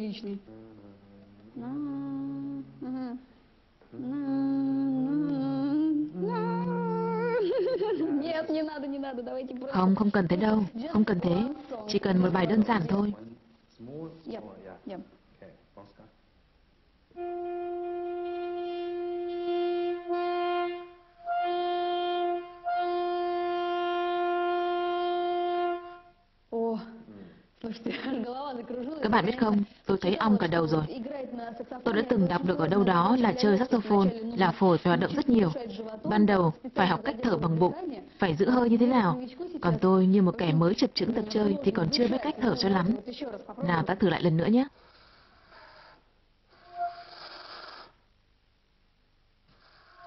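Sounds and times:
saxophone playing slow notes: 4.0s - 7.4s, 17.1s - 26.2s.

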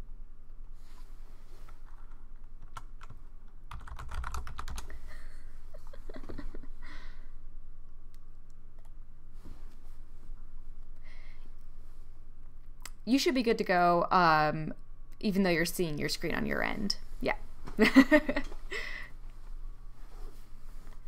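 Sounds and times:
low electrical hum: 0.0s - 21.0s
typing on a keyboard: 1.9s - 4.9s.

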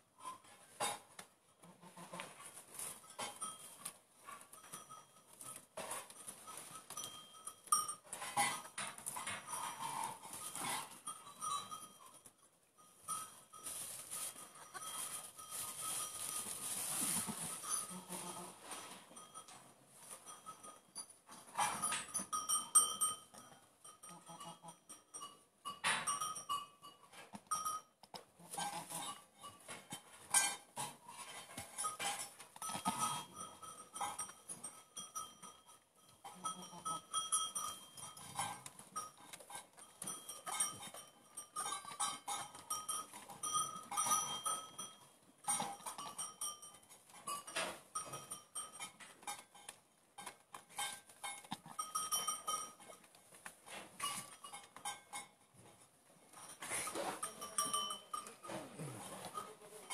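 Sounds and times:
goat licking and rustling in straw: 2.0s - 12.4s, 13.1s - 21.5s
straw rustling: 13.6s - 18.9s.

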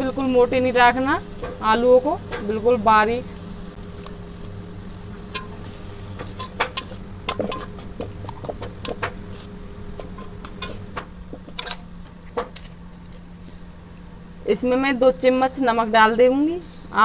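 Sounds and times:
spoon scraping metal pot: 6.2s - 11.8s.

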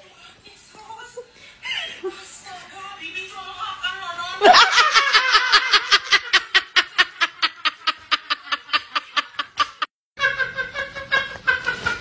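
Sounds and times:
person laughing: 4.4s - 12.0s.

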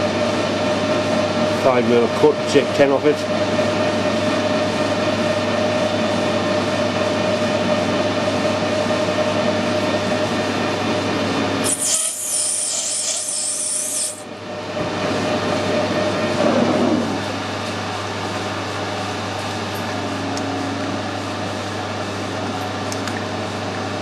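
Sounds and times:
high hiss of cutting tool: 11.6s - 14.2s.

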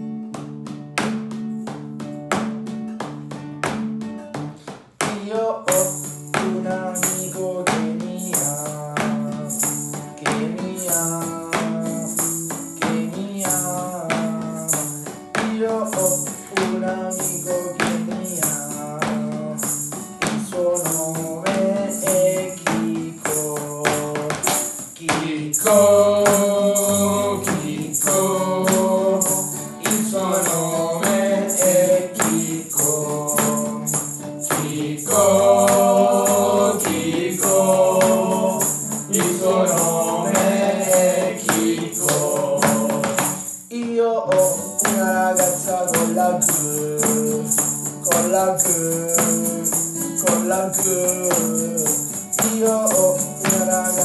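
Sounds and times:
acoustic guitar strumming: 0.0s - 54.0s
egg shaker rhythm: 0.4s - 54.0s
men singing together: 25.0s - 43.5s, 44.3s - 54.0s.

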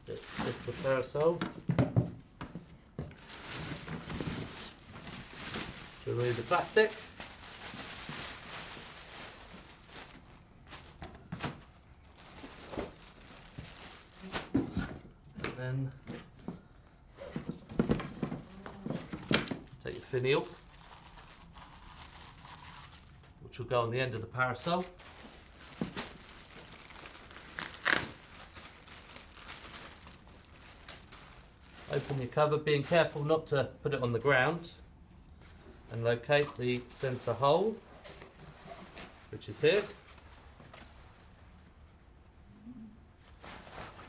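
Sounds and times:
plastic sleeve crinkling: 0.0s - 1.4s, 3.2s - 14.6s, 19.8s - 23.4s, 24.6s - 33.2s
plastic wrapping rustling: 0.0s - 1.7s, 3.0s - 15.0s, 17.8s - 23.4s, 24.6s - 33.3s, 36.3s - 41.9s, 43.2s - 44.0s.

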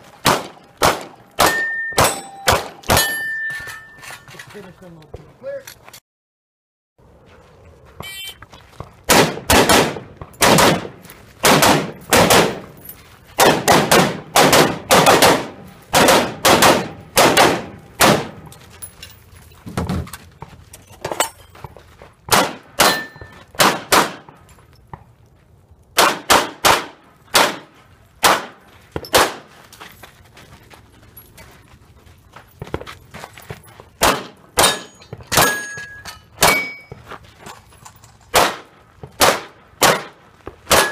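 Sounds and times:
shotgun blasts: 0.2s - 3.1s, 9.1s - 12.7s, 13.4s - 18.4s, 22.3s - 24.3s, 26.0s - 29.5s, 34.0s - 35.6s, 38.3s - 40.9s.

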